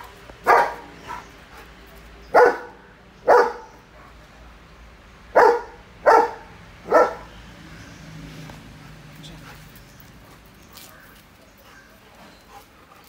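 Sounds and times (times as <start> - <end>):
dog barking loudly: 0.4 - 1.3, 2.3 - 4.2, 5.3 - 7.4.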